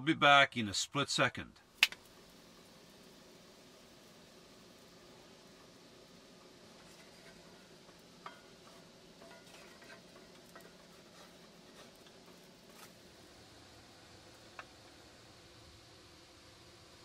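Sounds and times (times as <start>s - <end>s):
faint steady hiss: 0.0s - 17.0s
spoon scraping skillet: 6.6s - 13.2s.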